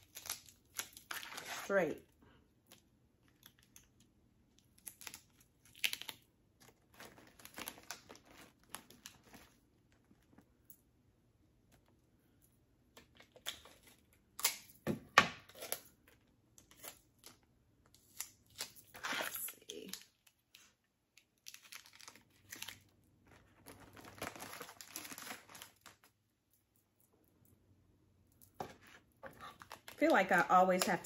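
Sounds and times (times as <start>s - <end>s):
plastic wrappers crinkling: 0.0s - 1.8s, 2.7s - 10.4s, 18.0s - 26.3s, 29.3s - 31.0s.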